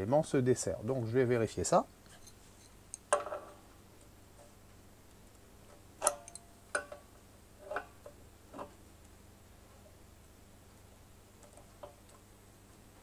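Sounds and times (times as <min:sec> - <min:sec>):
spanner clicking on metal fitting: 0:06.0 - 0:06.9.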